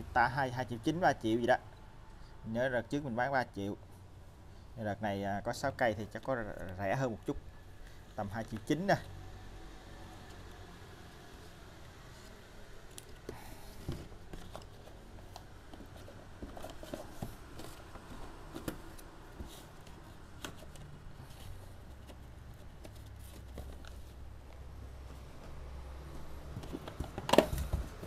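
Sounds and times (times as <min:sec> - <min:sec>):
cardboard rustling: 0:13.1 - 0:24.4, 0:25.0 - 0:28.0.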